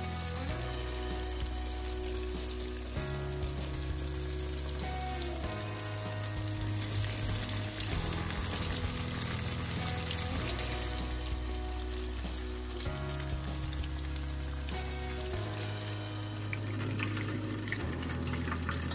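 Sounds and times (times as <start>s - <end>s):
background music with chords and bass: 0.0s - 18.9s
tofu sizzling in hot oil: 0.0s - 18.9s.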